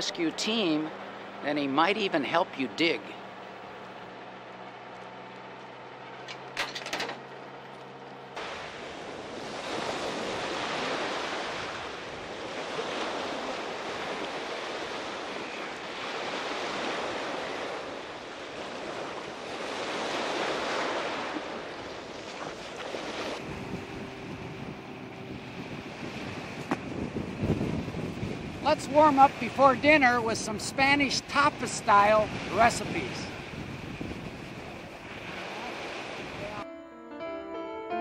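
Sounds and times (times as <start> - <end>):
tractor engine running: 0.0 - 8.4
small waves on sandy shore: 0.0 - 36.6.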